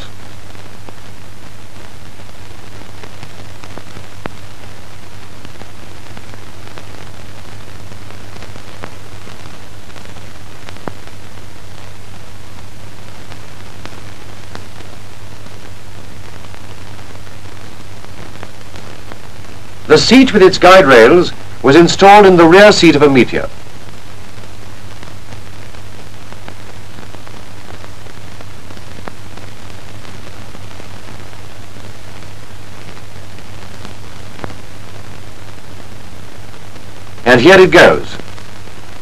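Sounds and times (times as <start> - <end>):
film soundtrack hiss: 0.0 - 39.0.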